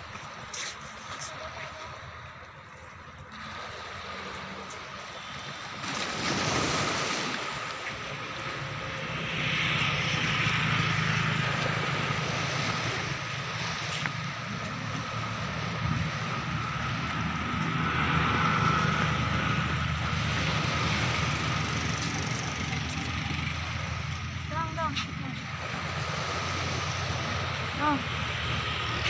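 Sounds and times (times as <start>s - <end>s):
small waves washing against rocks: 3.4s - 9.2s.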